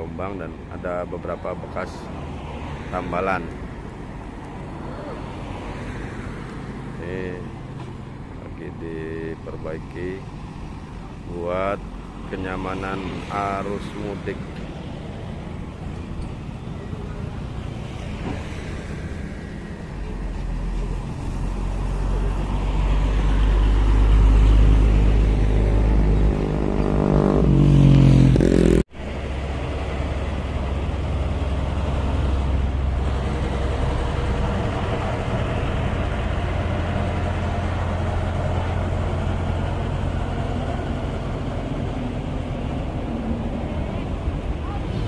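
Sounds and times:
heavy vehicle engine revving: 20.2s - 45.0s
road roller engine running: 29.0s - 45.0s.

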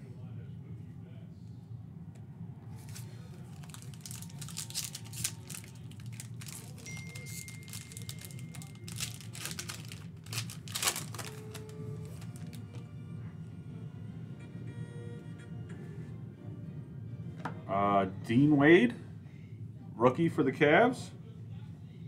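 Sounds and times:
foil wrapper crinkling and tearing: 2.9s - 12.8s.

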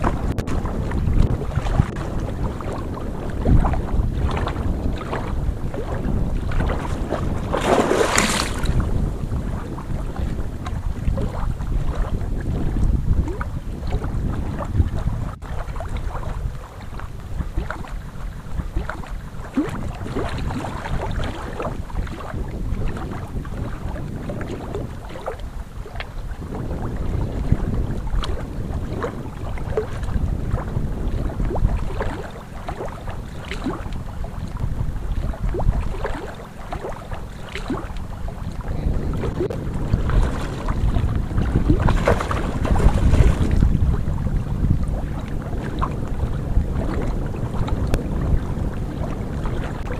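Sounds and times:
water splashing and lapping: 0.0s - 49.9s
wind buffeting microphone: 0.0s - 49.9s
small sharp splashes: 7.4s - 8.8s, 39.4s - 43.6s.

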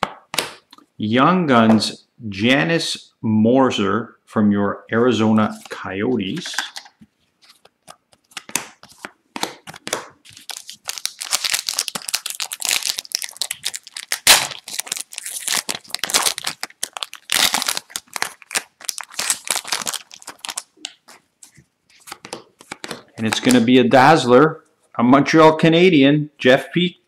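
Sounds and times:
foil wrapper crinkling and tearing: 7.5s - 21.2s
loud crack of wrapper: 9.7s - 21.0s.

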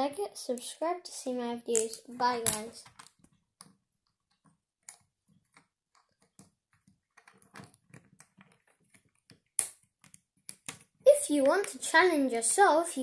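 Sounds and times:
plastic bricks clicking: 1.7s - 11.0s.

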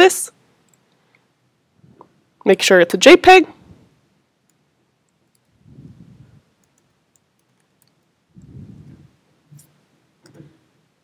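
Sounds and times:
mouse clicking: 4.4s - 5.5s, 6.6s - 8.5s
computer keyboard typing: 6.6s - 8.1s.

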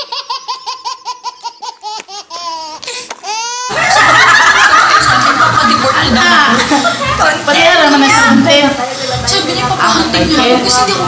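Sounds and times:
baby laughing: 0.0s - 4.0s
adults laughing together: 3.7s - 7.5s.

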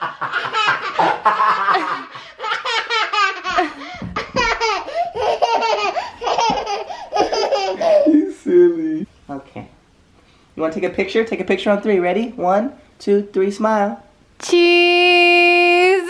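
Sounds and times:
man laughing: 0.0s - 2.5s, 3.4s - 9.1s
toddler laughing: 0.0s - 8.8s.

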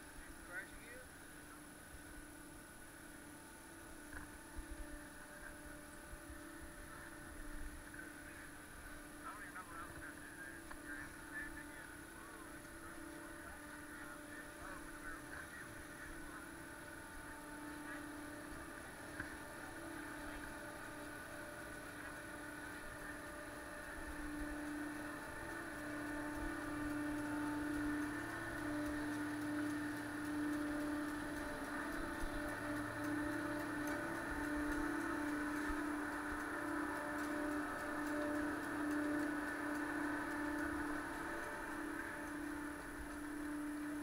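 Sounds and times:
chairlift machinery humming: 0.0s - 44.0s.

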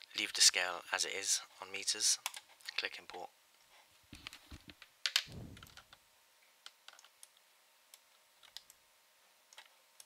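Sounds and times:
brief low thud: 5.3s - 5.9s
computer mouse clicks: 6.6s - 8.8s, 9.5s - 10.0s.

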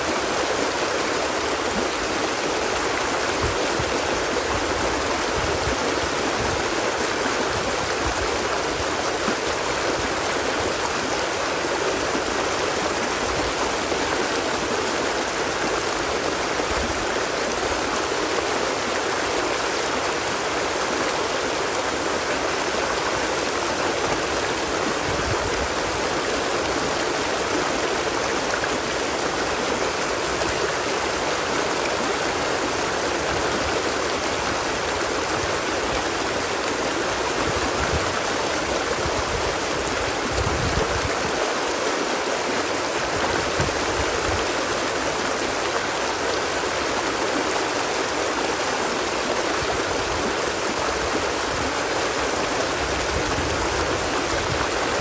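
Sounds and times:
running water flowing: 0.0s - 55.0s.

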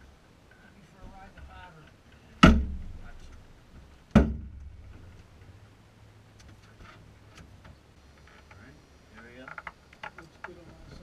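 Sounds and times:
heavy thumps in small cabin: 2.4s - 3.1s, 4.1s - 5.0s.

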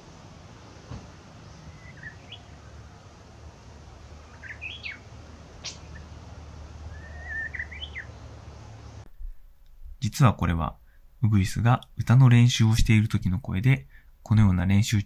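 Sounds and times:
bird chirping and warbling: 1.4s - 3.0s, 4.2s - 8.7s.

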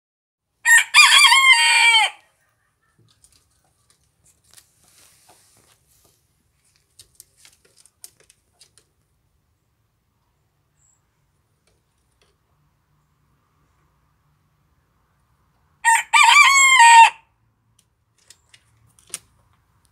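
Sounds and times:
faint scratchy clicks and rustles: 2.8s - 9.2s.

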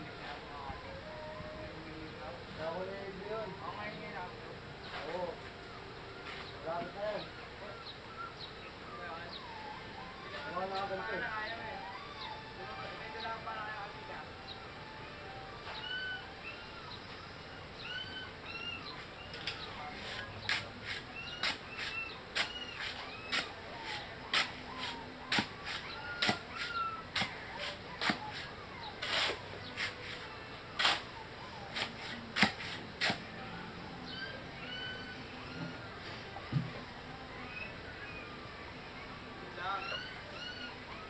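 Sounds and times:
birds chirping: 0.0s - 41.0s
digging tool striking ground: 24.3s - 28.4s, 30.8s - 31.1s, 31.7s - 33.2s.

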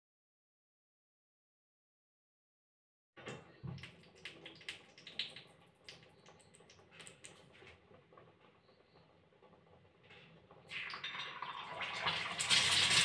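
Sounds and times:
oil crackling and popping: 3.2s - 13.0s.

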